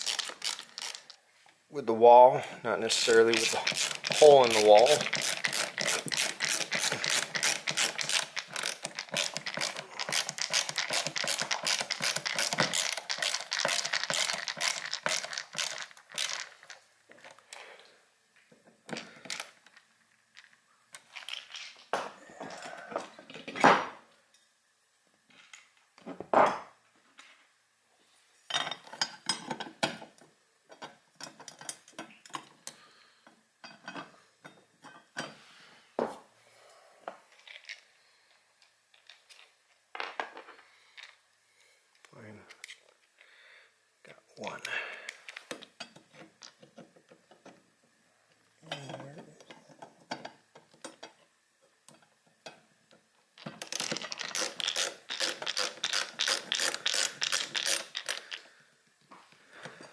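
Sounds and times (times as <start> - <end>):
ratcheting screwdriver clicking: 0.0 - 1.0, 3.0 - 16.6, 53.6 - 58.4.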